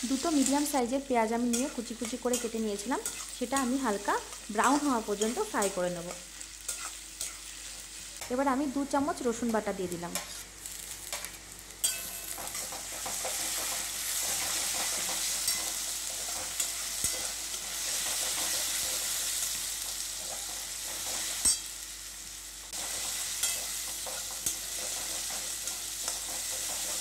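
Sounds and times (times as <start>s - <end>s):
onions sizzling in oil: 0.0s - 27.0s
metal spatula scraping pan: 1.5s - 3.7s, 6.6s - 7.5s.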